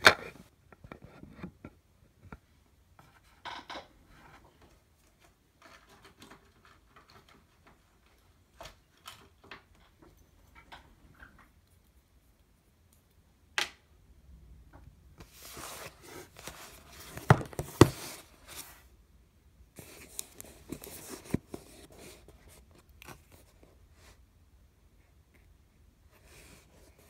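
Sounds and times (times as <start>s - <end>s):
cardboard scraping and rustling: 15.2s - 18.8s, 19.8s - 23.6s.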